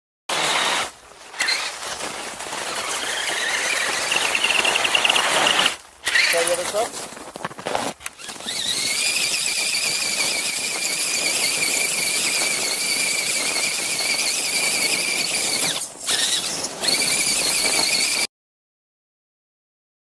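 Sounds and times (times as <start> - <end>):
electric motor whining: 2.8 - 6.7, 8.0 - 18.3.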